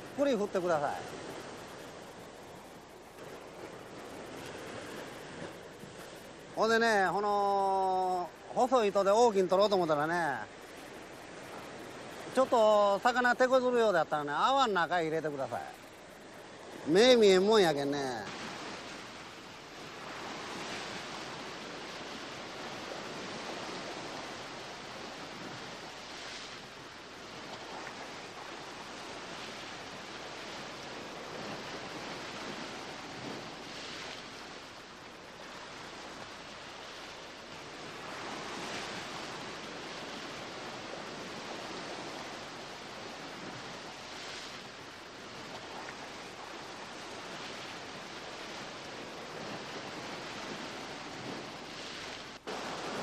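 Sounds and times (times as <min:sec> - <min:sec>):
surf breaking over rocks: 0:00.0 - 0:16.0, 0:45.4 - 0:53.0.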